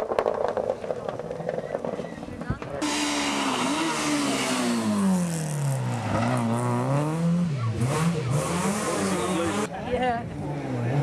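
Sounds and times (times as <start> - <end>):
rally car engine decelerating and accelerating: 2.7 - 11.0.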